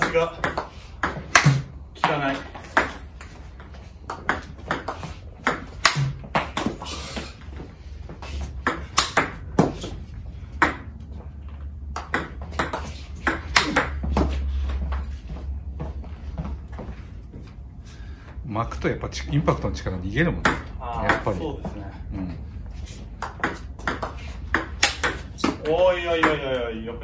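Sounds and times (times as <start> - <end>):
ball bouncing on table: 0.0 - 6.8, 8.6 - 11.0, 11.9 - 15.1, 20.4 - 21.4, 23.2 - 26.4
ping pong ball hitting rackets: 0.0 - 7.8, 8.5 - 11.2, 11.9 - 15.1, 20.4 - 21.5, 23.1 - 26.6.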